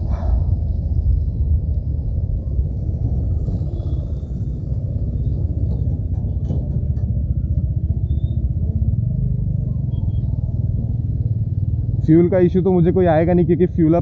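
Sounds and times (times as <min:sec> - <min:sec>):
motorcycle engine running: 0:02.7 - 0:13.7.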